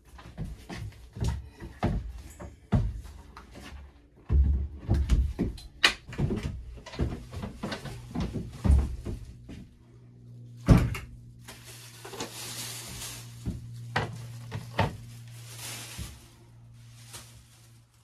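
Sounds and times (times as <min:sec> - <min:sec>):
steady low hum: 0:00.0 - 0:18.0
footsteps on wooden floor: 0:00.1 - 0:09.7
knocks and thumps: 0:00.3 - 0:09.7.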